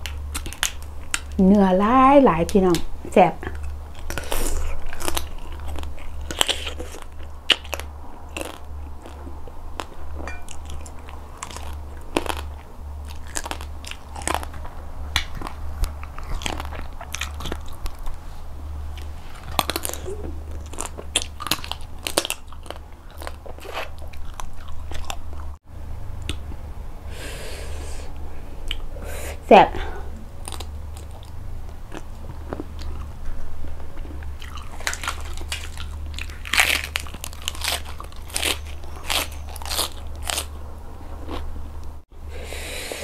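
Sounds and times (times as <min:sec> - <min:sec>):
person chewing crab crunchily: 0:00.0 - 0:01.4, 0:03.5 - 0:18.2, 0:18.8 - 0:25.6, 0:30.2 - 0:41.5
steady low hum: 0:00.0 - 0:43.0.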